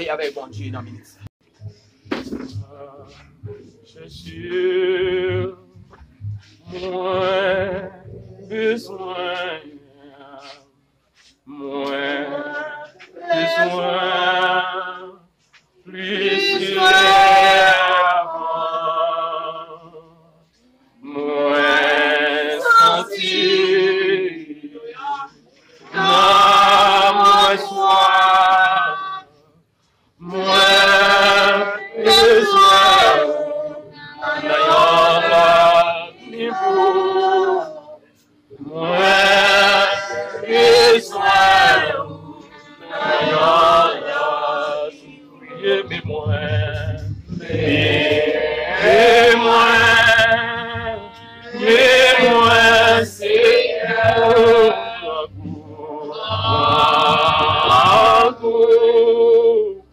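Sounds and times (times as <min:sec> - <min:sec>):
person singing unaccompanied: 0:02.4 - 0:10.6, 0:11.5 - 0:15.2, 0:15.9 - 0:20.0, 0:21.0 - 0:29.3, 0:30.2 - 0:59.9.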